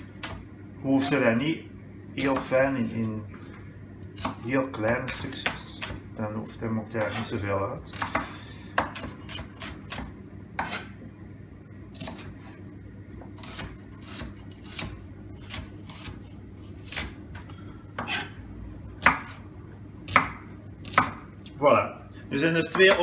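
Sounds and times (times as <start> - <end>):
knife chopping on wooden board: 4.2 - 6.0, 7.0 - 7.3, 7.9 - 10.9, 12.0 - 12.4, 13.2 - 16.2, 18.0 - 18.4, 19.0 - 19.4, 20.1 - 21.3.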